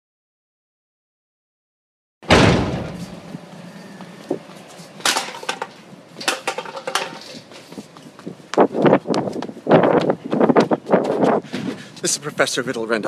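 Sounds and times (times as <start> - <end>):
sudden loud impact: 2.2 - 3.3
clicks and clattering knocks: 5.0 - 7.4.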